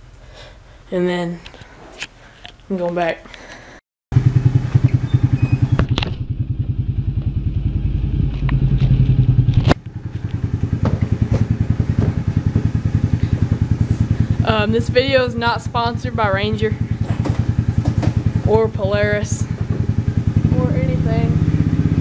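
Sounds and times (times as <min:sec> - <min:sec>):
vehicle engine idling: 0:04.2 - 0:22.0
knocks and clatters: 0:05.6 - 0:07.4, 0:08.2 - 0:14.1, 0:17.0 - 0:18.6, 0:19.5 - 0:20.1.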